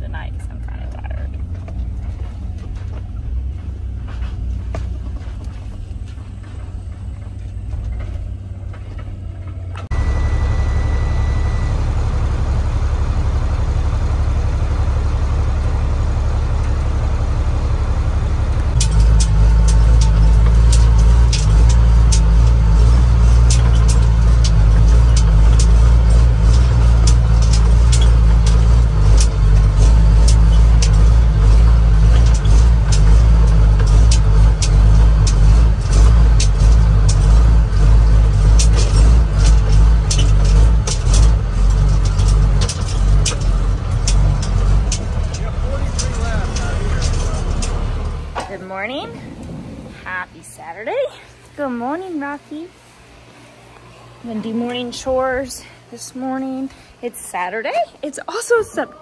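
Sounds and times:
diesel truck engine: 0.0s - 57.0s
vehicle engine and road noise: 0.0s - 58.9s
truck rattles and knocks: 1.0s - 10.0s, 11.9s - 49.6s
steady beep: 9.9s - 12.4s.

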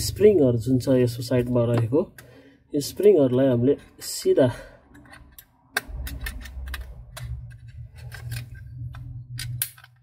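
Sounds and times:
low steady hum: 0.0s - 10.0s
plastic parts clicking and tapping: 1.4s - 2.3s, 4.9s - 10.0s.

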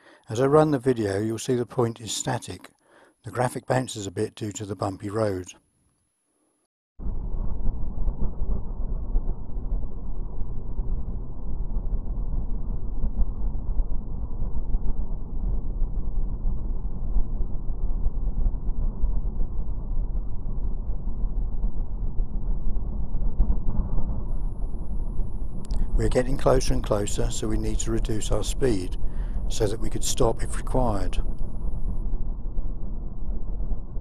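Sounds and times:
wind buffeting: 7.6s - 34.0s.

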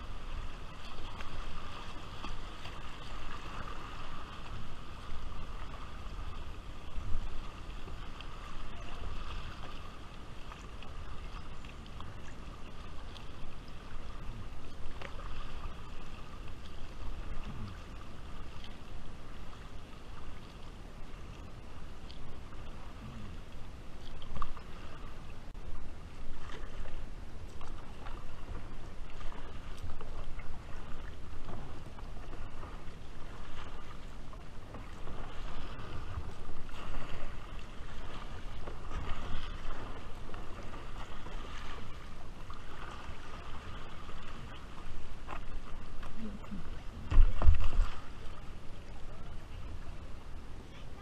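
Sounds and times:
paddle strokes splashing: 0.0s - 51.0s
water rippling around hull: 0.0s - 51.0s
wind rumbling on microphone: 0.0s - 51.0s.

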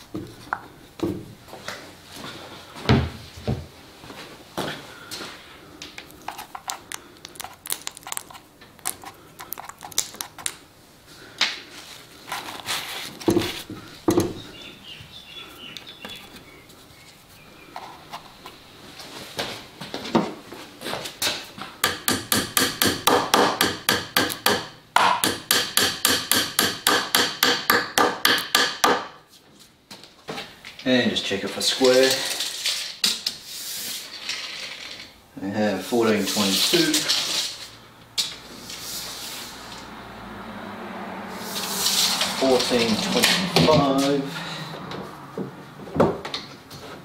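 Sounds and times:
hammer tapping wooden dowels: 21.8s - 29.2s.

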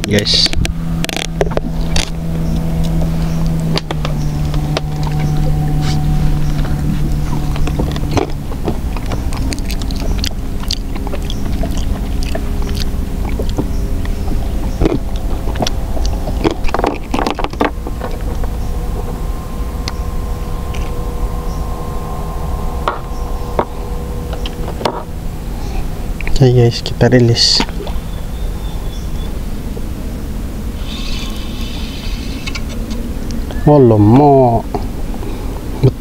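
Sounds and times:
boat engine running: 0.0s - 36.0s.

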